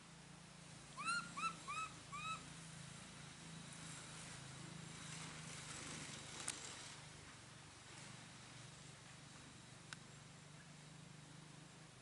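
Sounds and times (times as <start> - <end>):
small animal high calls: 1.0 - 2.5.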